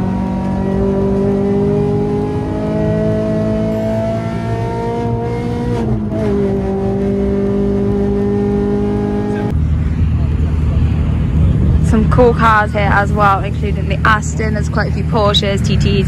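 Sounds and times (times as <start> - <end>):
car engine pulling hard: 0.0 - 16.0.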